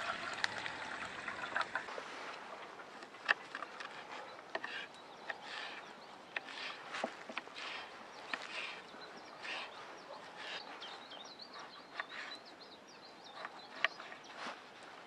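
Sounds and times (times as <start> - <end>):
bird singing: 3.5 - 14.5.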